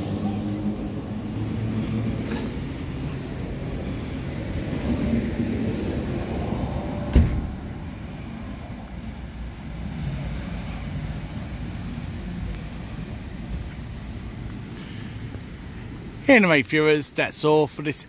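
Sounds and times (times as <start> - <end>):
electric train rumbling away: 0.0 - 14.2
sharp knock: 7.1 - 7.6.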